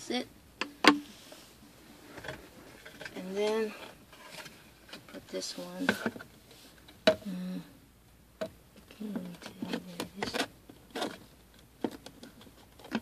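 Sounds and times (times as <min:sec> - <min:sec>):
plastic clicks and knocks: 0:08.4 - 0:13.0.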